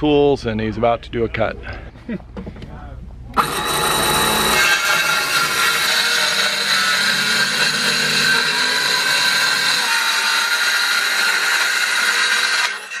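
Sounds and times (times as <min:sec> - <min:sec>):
circular saw cutting wood: 0:03.4 - 0:13.0.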